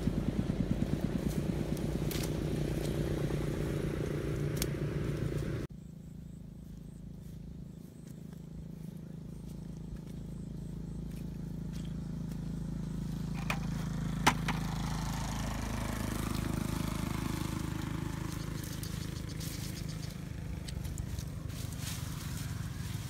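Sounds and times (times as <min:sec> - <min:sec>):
leaves rustling: 0:00.0 - 0:05.7, 0:14.6 - 0:23.0
steady low rumble: 0:00.0 - 0:23.0.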